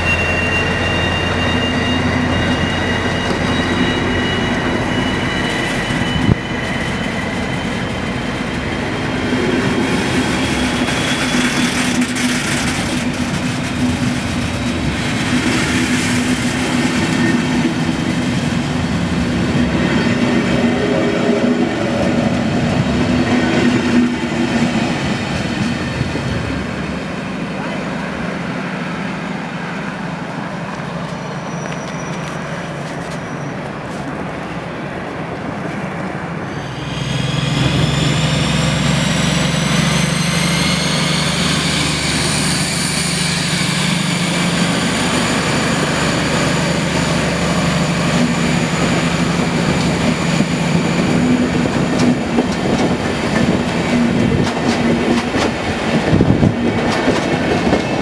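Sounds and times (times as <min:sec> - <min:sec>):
train low rumble: 0:00.0 - 0:58.0
wheels clattering over rail joints: 0:09.3 - 0:20.8
diesel locomotive engine revving: 0:36.1 - 0:58.0.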